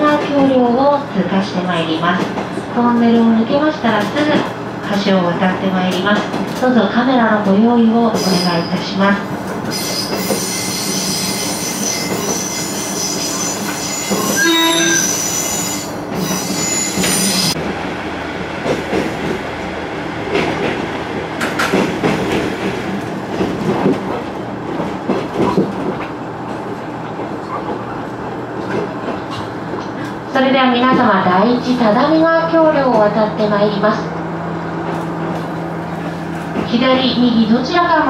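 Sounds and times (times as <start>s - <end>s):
train rumbling: 0.0s - 38.0s
train knocks: 8.2s - 17.7s, 18.6s - 19.5s, 20.2s - 30.0s, 30.7s - 31.8s
train wheels squealing: 9.7s - 17.6s
train horn blast: 14.4s - 15.2s.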